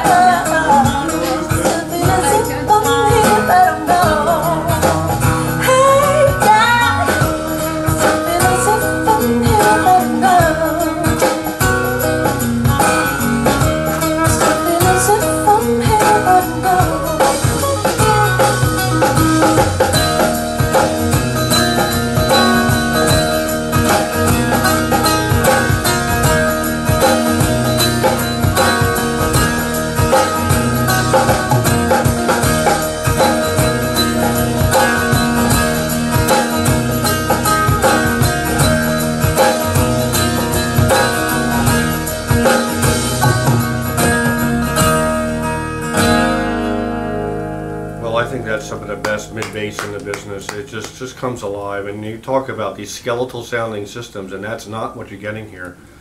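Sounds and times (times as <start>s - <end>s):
woman singing: 0.0s - 11.7s, 12.6s - 19.2s, 30.8s - 32.6s
guitar music over loudspeakers: 0.0s - 51.7s.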